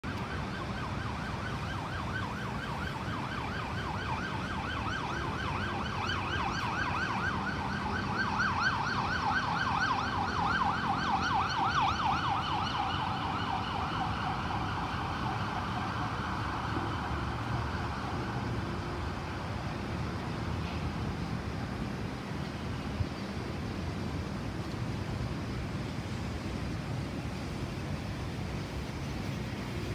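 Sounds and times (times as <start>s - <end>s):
emergency siren yelping: 0.0s - 19.5s
city traffic rumble: 0.0s - 29.9s.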